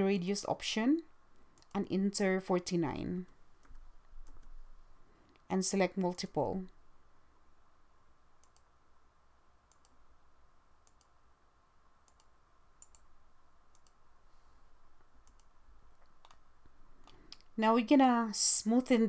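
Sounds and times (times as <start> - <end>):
computer mouse clicks: 1.4 - 1.8, 3.3 - 4.6, 8.4 - 8.7, 9.7 - 10.0, 10.8 - 11.2, 12.0 - 13.1, 13.7 - 14.0, 15.2 - 16.4, 17.0 - 17.5.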